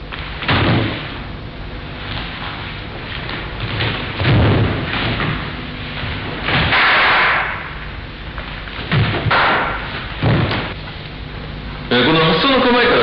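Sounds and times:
heavy thuds on wooden floor: 3.7s - 5.6s, 8.8s - 10.8s.

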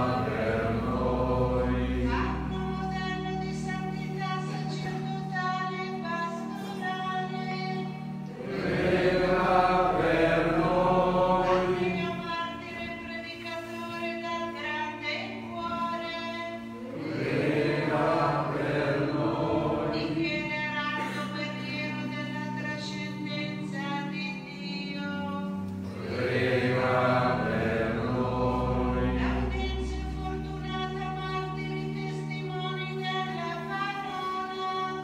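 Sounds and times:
choir singing a hymn: 0.0s - 3.8s, 8.2s - 13.2s, 16.8s - 23.9s, 25.8s - 31.6s
sustained chords: 0.0s - 5.1s, 8.0s - 13.0s, 25.5s - 33.8s.

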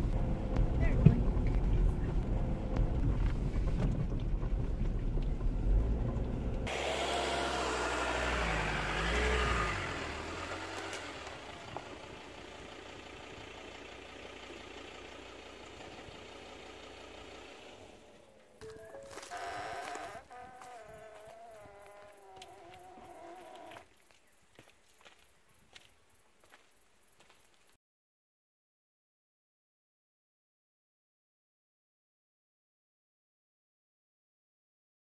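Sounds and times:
higher wavering engine sound: 0.0s - 23.8s
vehicle engine and road noise: 0.0s - 27.7s.

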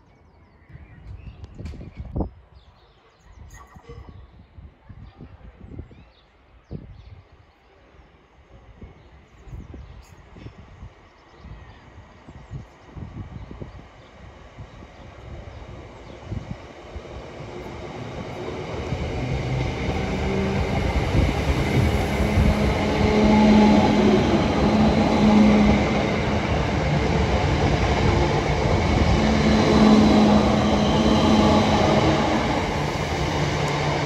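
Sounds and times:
train wheels rumbling on rails: 12.9s - 34.0s.

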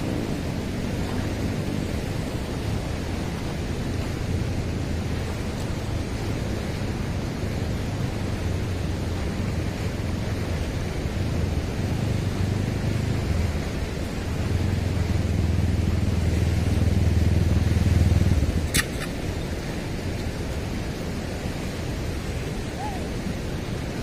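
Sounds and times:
river rushing at weir: 0.0s - 24.0s
sharp click: 18.7s - 19.2s.

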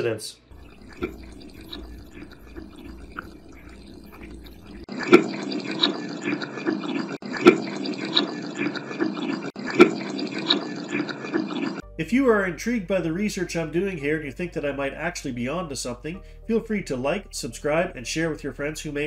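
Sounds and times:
tap water running and splashing: 0.5s - 11.9s.

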